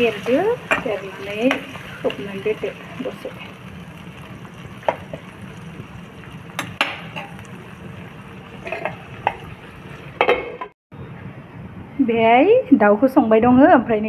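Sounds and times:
food sizzling in a wok: 0:00.0 - 0:10.6
spatula scraping a pan: 0:08.6 - 0:09.4
glass lid clattering: 0:08.6 - 0:09.5, 0:10.2 - 0:10.7.

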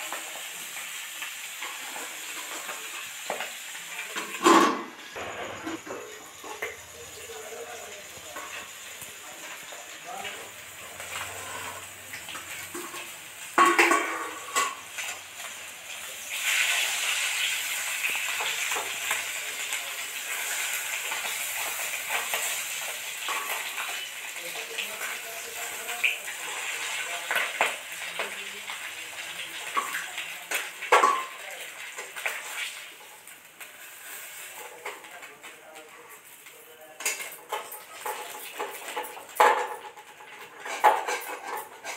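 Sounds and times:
fish sizzling in oil: 0:00.0 - 0:41.9
metal utensils clinking on pan: 0:01.6 - 0:33.3, 0:34.0 - 0:41.9
steel plate lid clanking: 0:04.2 - 0:06.7, 0:12.7 - 0:14.8.

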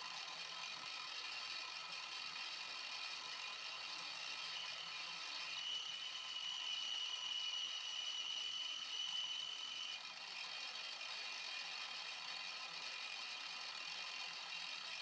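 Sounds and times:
milling machine spindle whine: 0:00.1 - 0:10.3.

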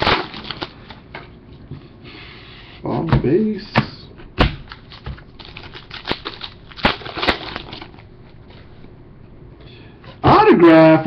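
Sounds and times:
cards rustling: 0:04.7 - 0:08.0.

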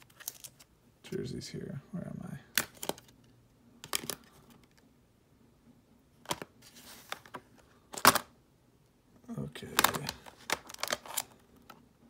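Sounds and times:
cards rustling: 0:00.0 - 0:00.7, 0:02.5 - 0:04.8, 0:06.2 - 0:08.3, 0:09.4 - 0:11.8.

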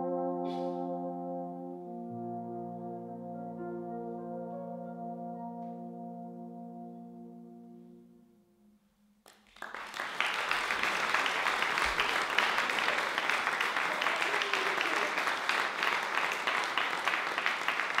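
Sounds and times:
brass and piano chord: 0:00.0 - 0:08.8
audience applause: 0:09.3 - 0:18.0.

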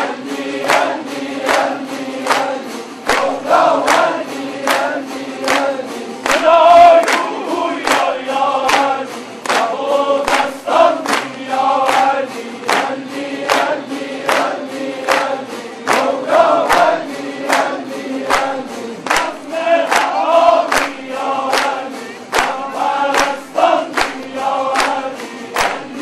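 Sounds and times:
crowd clapping in time: 0:00.0 - 0:26.0
many voices singing together: 0:00.0 - 0:26.0.

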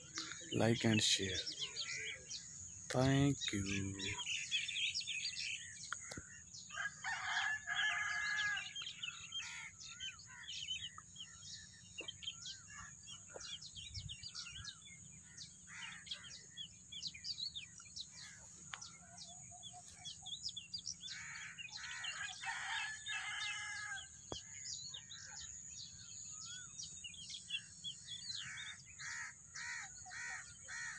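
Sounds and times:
birds chirping and calling: 0:00.0 - 0:30.9
rooster crowing: 0:06.7 - 0:08.8, 0:21.9 - 0:24.1.

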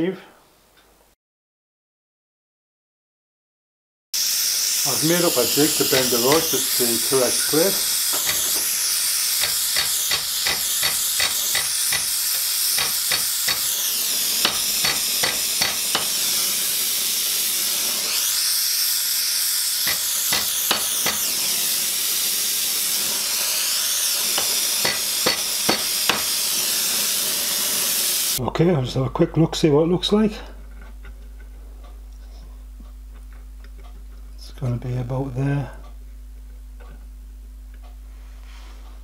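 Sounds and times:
gas torch flame hissing: 0:04.2 - 0:28.4.

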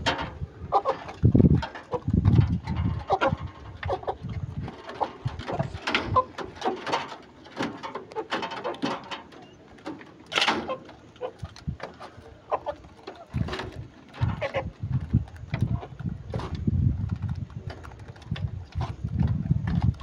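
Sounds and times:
chicken calls: 0:00.6 - 0:01.2, 0:02.9 - 0:14.8
beaks pecking wood: 0:03.1 - 0:16.6.

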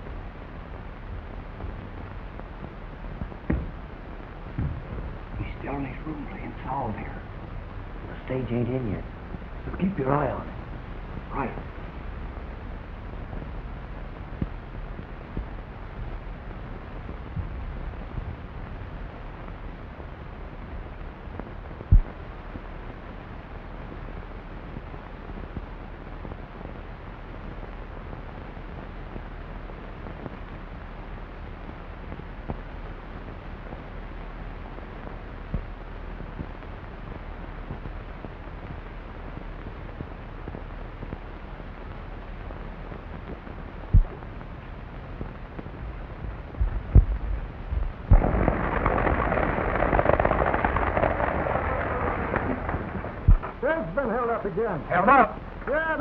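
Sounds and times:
film soundtrack hiss: 0:00.0 - 0:56.0
low thumps: 0:03.2 - 0:03.9, 0:04.5 - 0:05.5, 0:21.8 - 0:22.2, 0:43.3 - 0:53.8
knocks: 0:03.5 - 0:03.7
loud rush of noise: 0:43.5 - 0:56.0.

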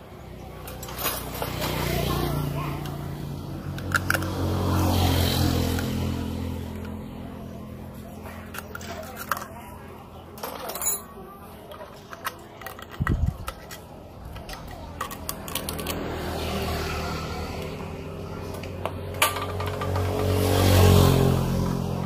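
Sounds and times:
passing motorbike engine: 0:00.0 - 0:11.0, 0:13.3 - 0:22.0
metal tools clinking and scraping: 0:00.5 - 0:02.0, 0:03.7 - 0:04.4, 0:08.0 - 0:16.2, 0:18.6 - 0:20.4.

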